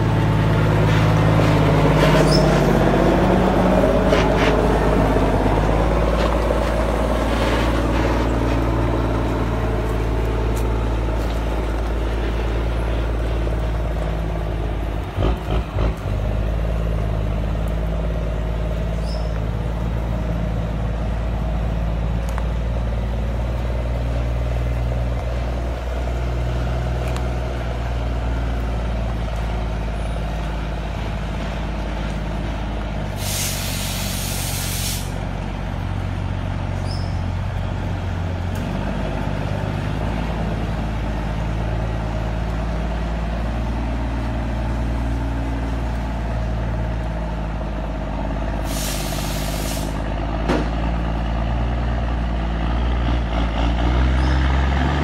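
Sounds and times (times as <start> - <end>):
diesel truck engine running: 0.0 - 55.0
air brakes hissing: 33.1 - 35.2, 48.6 - 50.0.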